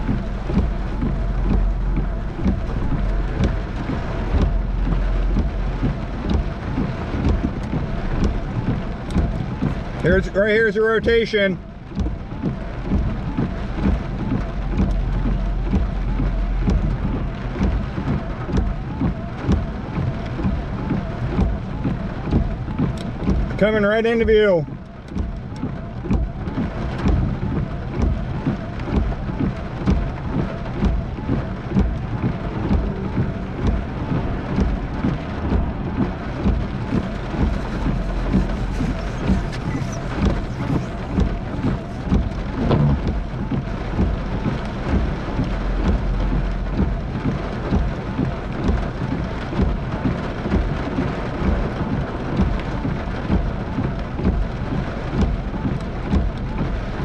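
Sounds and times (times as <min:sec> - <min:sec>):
thunder rumbling: 0:00.0 - 0:10.3, 0:24.7 - 0:57.0
heavy rain on car windshield: 0:00.0 - 0:57.0.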